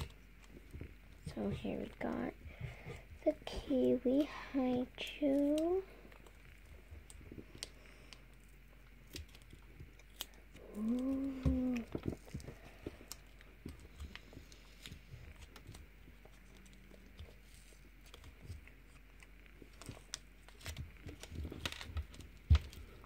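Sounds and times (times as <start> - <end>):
wrapper crinkling and tearing: 16.4 - 23.0
fingers clicking on foil: 19.6 - 23.0.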